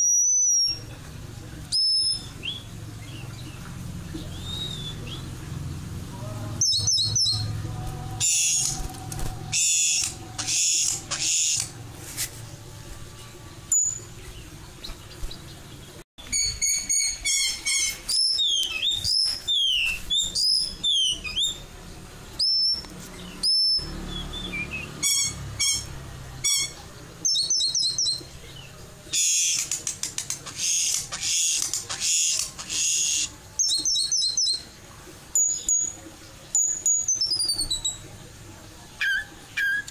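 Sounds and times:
bird calling high whistles: 0.0s - 0.8s, 1.7s - 2.6s, 4.3s - 5.2s.

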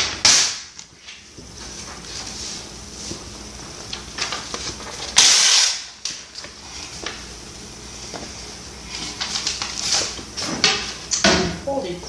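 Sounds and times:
page rustling harshly: 0.0s - 7.3s
paper rustling: 0.8s - 5.2s, 8.0s - 11.0s.

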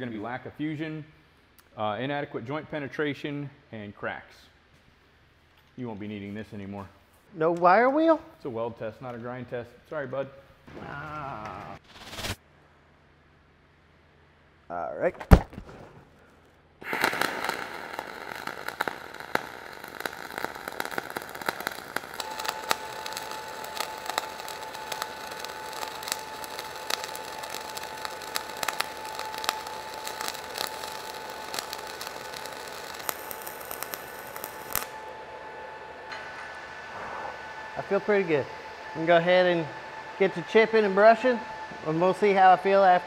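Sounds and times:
arc welding crackle and sizzle: 16.2s - 36.5s
welding spatter pops: 16.8s - 35.0s.

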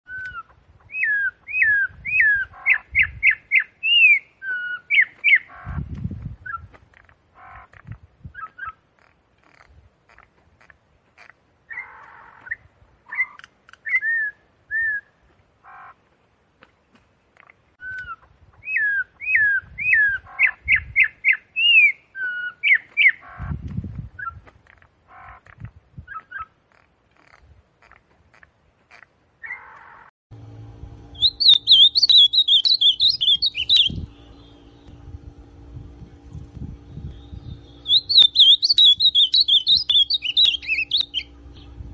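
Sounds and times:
bird warbling high song: 0.1s - 10.3s, 11.2s - 16.0s, 17.4s - 24.4s, 31.0s - 41.9s
steady hum: 30.3s - 41.9s
bird whistling rising notes: 31.0s - 35.3s, 36.7s - 41.9s.

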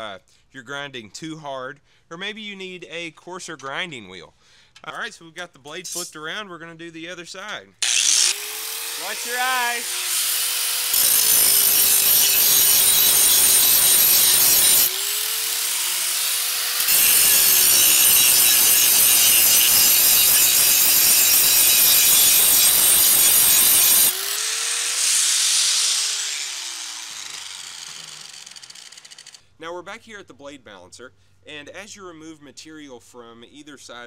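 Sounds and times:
angle grinder motor whine: 7.8s - 29.4s
harsh grinding on steel: 7.8s - 29.4s.

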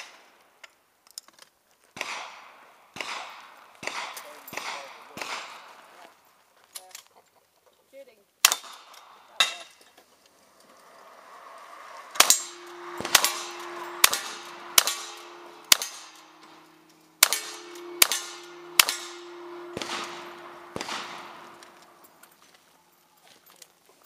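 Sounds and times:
gunshots: 2.0s - 6.0s, 8.4s - 9.6s, 11.0s - 22.4s
steel targets ringing: 10.4s - 23.0s.

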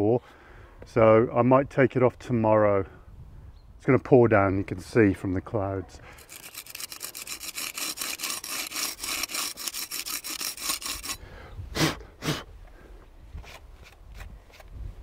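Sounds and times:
fast rasping scrape: 6.2s - 11.2s.

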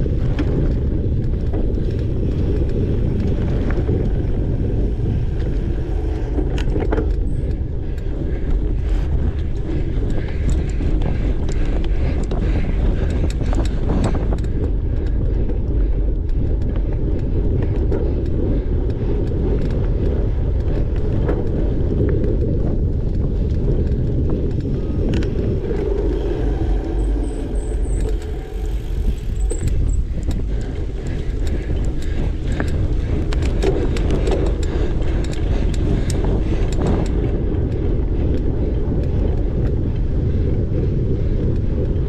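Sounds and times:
bike clicks and rattles: 0.0s - 42.0s
wind and tyre rumble: 0.0s - 42.0s.

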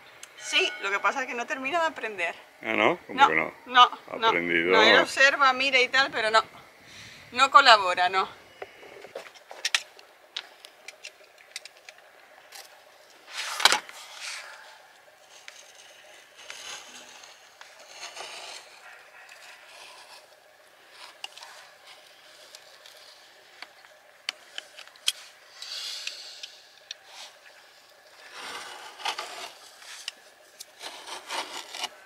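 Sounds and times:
scraping and rubbing: 13.2s - 23.7s, 28.1s - 32.0s.

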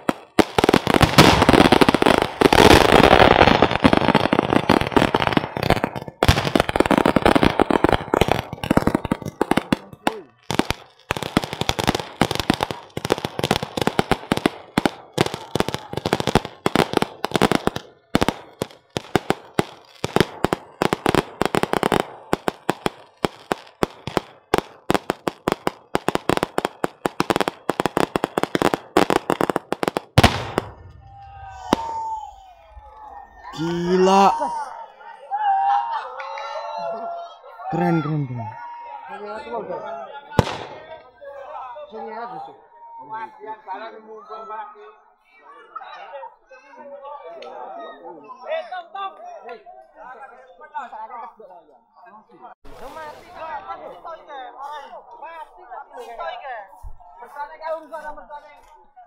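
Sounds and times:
firecrackers crackling and banging: 0.0s - 32.2s, 40.4s - 41.1s.

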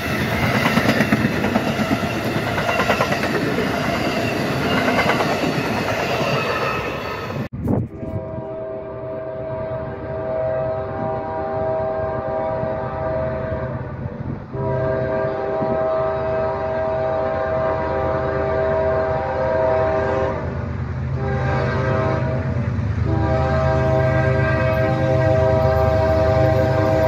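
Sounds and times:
locomotive horn blasts: 7.8s - 27.0s.

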